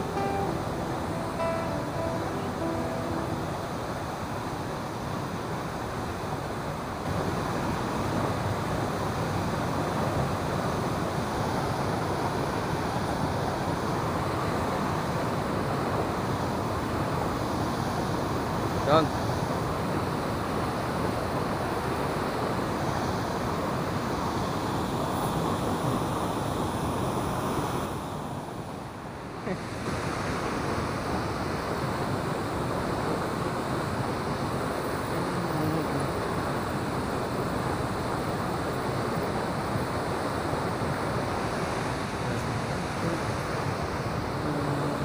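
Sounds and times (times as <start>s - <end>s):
river water rushing through weir: 0.0s - 45.0s.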